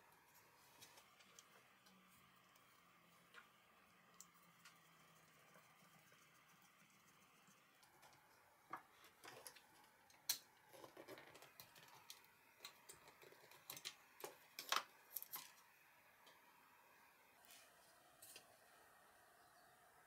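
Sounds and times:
small parts clicking and scraping: 4.1 - 16.4.

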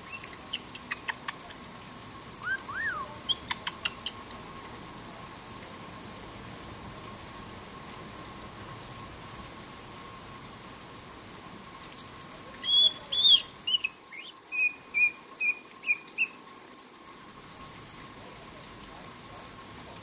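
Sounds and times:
rain patter: 0.0 - 20.0
parrot calling: 12.6 - 16.4.

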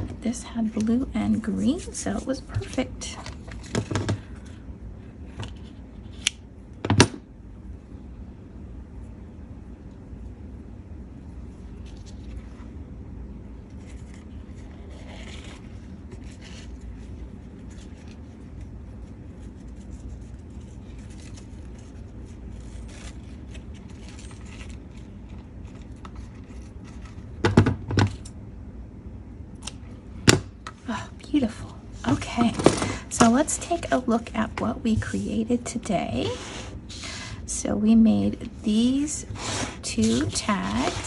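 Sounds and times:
low steady hum: 0.0 - 41.0
paper rustling: 13.7 - 27.3, 39.3 - 41.0.

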